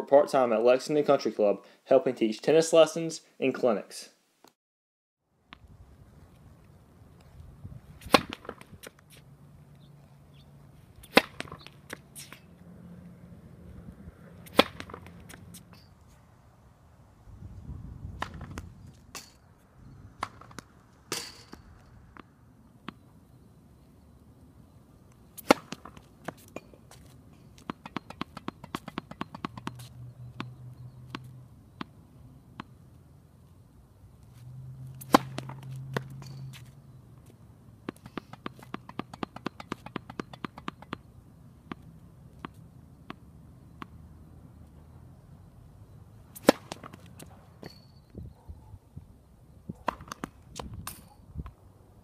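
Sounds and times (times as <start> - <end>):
racket hitting tennis ball: 8.0 - 9.3, 10.9 - 12.5, 14.3 - 15.9, 18.1 - 19.4, 20.2 - 23.0, 25.3 - 32.8, 34.8 - 44.0, 46.3 - 47.9, 49.8 - 51.1
tennis balls bouncing on court: 11.0 - 12.4, 14.4 - 15.8, 20.2 - 23.0, 25.4 - 32.8, 34.8 - 44.1, 46.3 - 47.9, 49.8 - 51.6.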